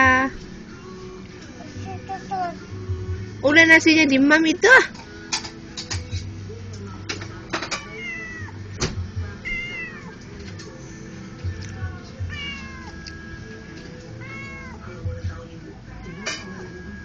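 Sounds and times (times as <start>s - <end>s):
cat meowing: 7.8s - 8.6s, 9.4s - 10.2s, 12.2s - 13.0s, 14.1s - 15.0s, 15.9s - 16.9s.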